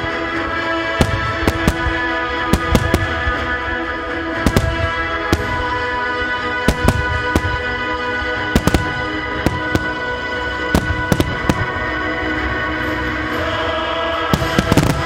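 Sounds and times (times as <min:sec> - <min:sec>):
steady music: 0:00.0 - 0:15.0.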